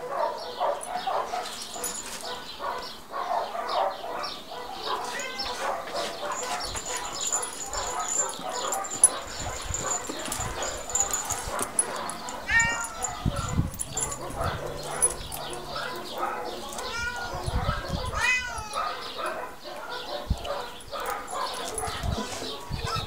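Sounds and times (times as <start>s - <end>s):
dog whining and yipping: 5.0s - 19.0s.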